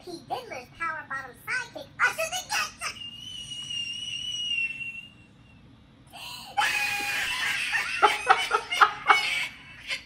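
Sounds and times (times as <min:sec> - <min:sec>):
person's high wavering squeal: 0:02.8 - 0:05.5.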